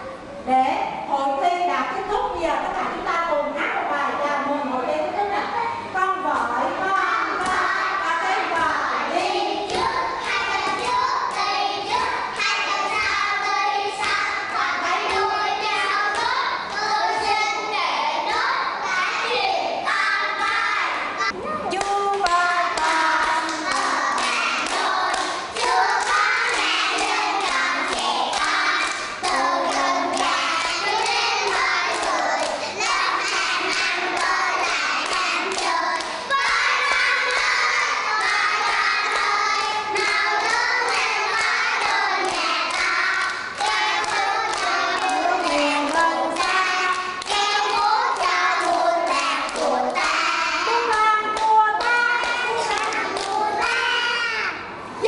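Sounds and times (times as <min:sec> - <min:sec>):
children singing in chorus: 0:09.0 - 0:17.7, 0:22.4 - 0:54.7
hands clapping: 0:21.8 - 0:32.6, 0:38.2 - 0:50.2, 0:50.8 - 0:53.8.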